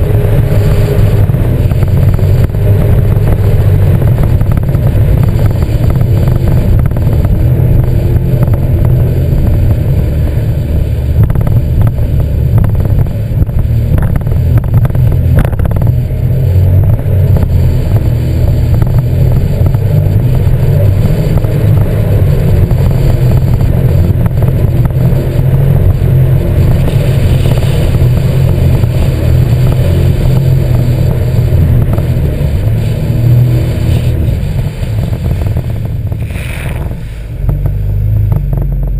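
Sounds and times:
watercraft engine rumbling: 0.0 - 38.9.

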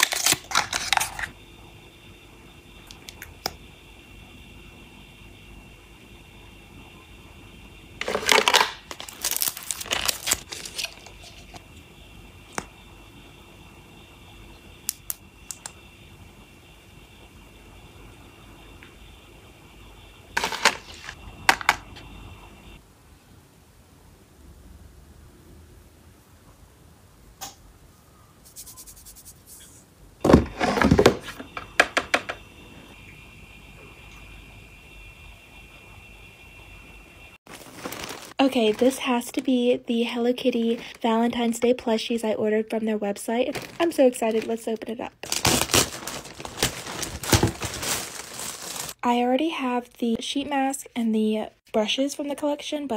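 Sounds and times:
packaging crinkling: 0.0 - 1.3, 8.0 - 11.6, 20.4 - 21.2, 37.5 - 39.4, 43.5 - 44.6, 45.2 - 49.0
cardboard box thunks: 30.2 - 31.3, 45.3 - 48.1.

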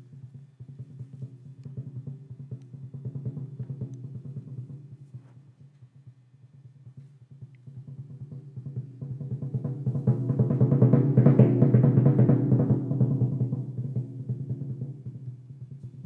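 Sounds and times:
timpani roll: 6.9 - 16.0.

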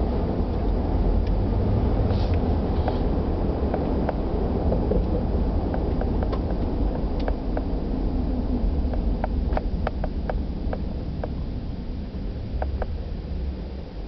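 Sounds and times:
car engine and road noise: 0.0 - 14.0
light ticks and clicks: 4.9 - 7.8, 8.9 - 11.4.

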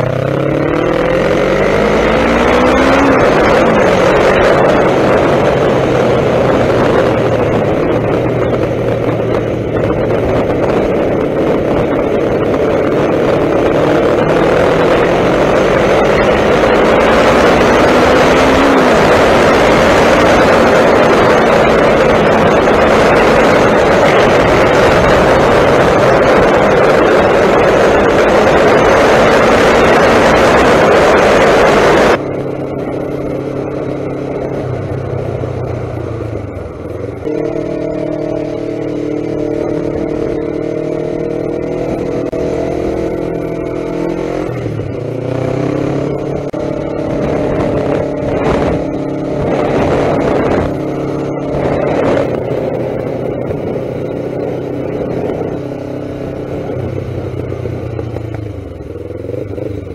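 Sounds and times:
motorcycle engine running: 0.0 - 59.9
wind rushing over microphone: 0.0 - 59.9.

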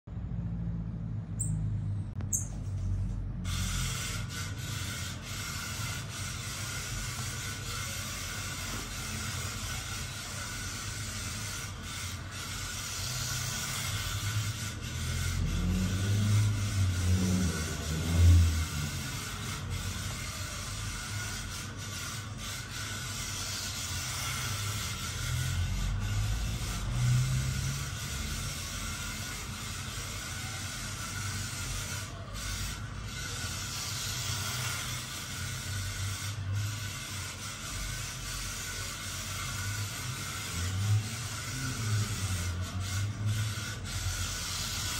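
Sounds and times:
small electric motor hum: 1.3 - 44.9.

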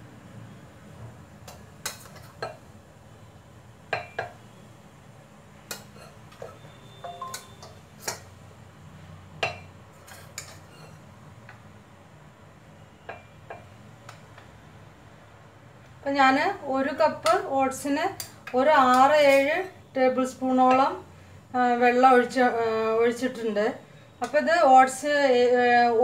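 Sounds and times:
metal spoon clinking on steel: 5.7 - 8.3, 9.4 - 11.0.

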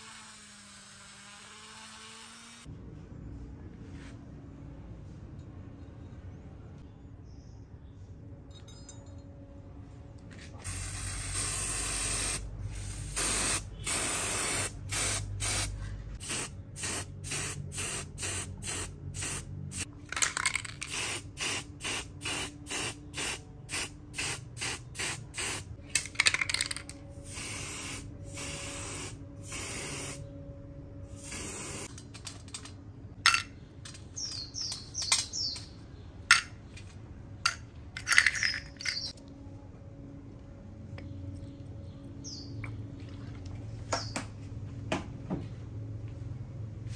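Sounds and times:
spray paint can hissing: 10.6 - 30.2, 31.1 - 32.0
metal screws clinking in tray: 37.5 - 39.1.

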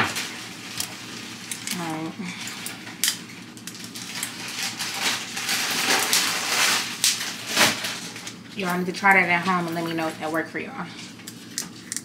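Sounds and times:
rustling and crunching: 0.0 - 8.7.

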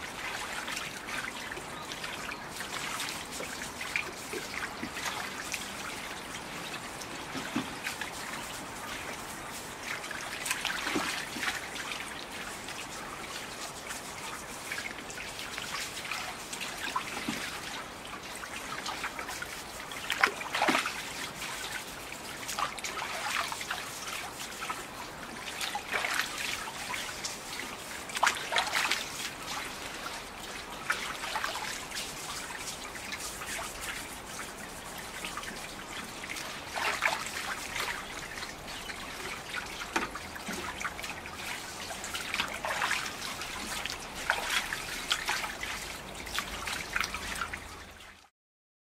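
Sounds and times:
water splashes: 0.0 - 48.3
water trickling and dripping: 0.0 - 48.3
brush strokes: 2.5 - 16.7, 28.8 - 47.3.

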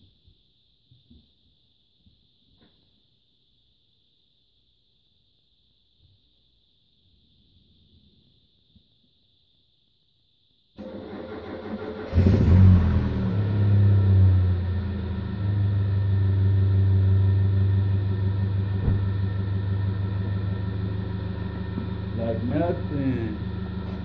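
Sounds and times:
car engine starting and idling: 10.8 - 24.0.

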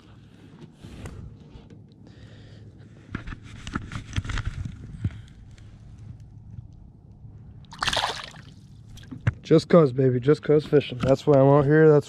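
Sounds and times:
knocks and scrapes in plastic kayak: 0.2 - 1.8, 3.0 - 5.2.

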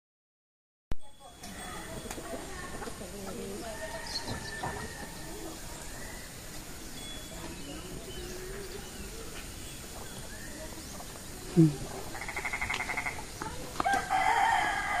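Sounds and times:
steady background hiss: 1.0 - 15.0
faint bird calls: 7.7 - 14.0.

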